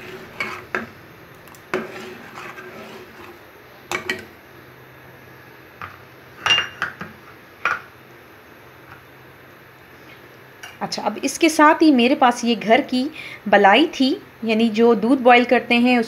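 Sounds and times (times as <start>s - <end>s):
spoon stirring thick mixture: 0.0s - 3.4s.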